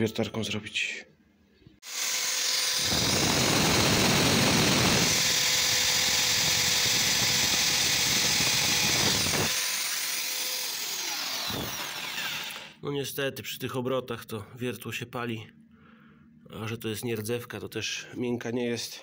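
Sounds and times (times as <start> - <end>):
drill bit grinding on steel: 1.8 - 12.8.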